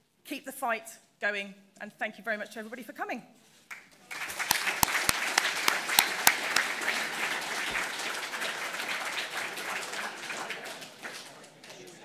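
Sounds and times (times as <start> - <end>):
audience applauding: 3.7 - 12.0
close sharp claps: 3.7 - 12.0.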